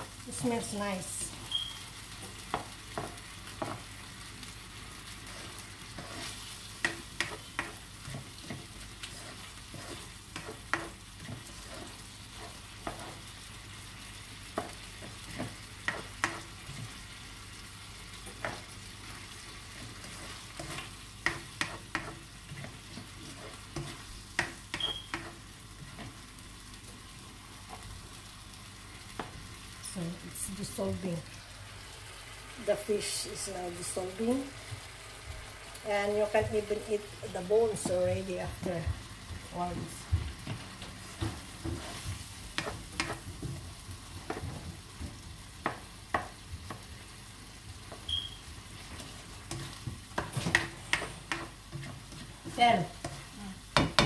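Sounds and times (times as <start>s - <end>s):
food sizzling in a wok: 0.0s - 54.0s
spatula scraping and tapping pan: 1.2s - 4.0s, 5.1s - 13.3s, 14.5s - 17.0s, 18.2s - 26.2s, 29.1s - 29.4s, 36.2s - 47.0s, 47.8s - 54.0s.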